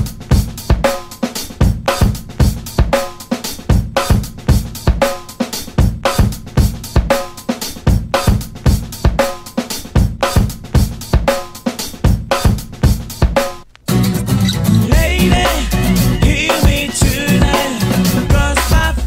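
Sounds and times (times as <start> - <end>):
drum kit beat: 0.0 - 19.0.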